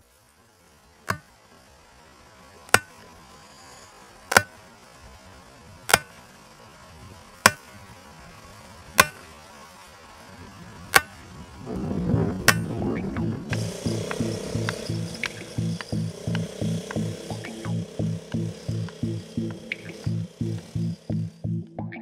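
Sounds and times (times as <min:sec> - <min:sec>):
hammer driving stake into turf: 0:04.3 - 0:04.6, 0:05.9 - 0:06.2, 0:07.4 - 0:07.7, 0:09.0 - 0:09.3, 0:10.9 - 0:11.2.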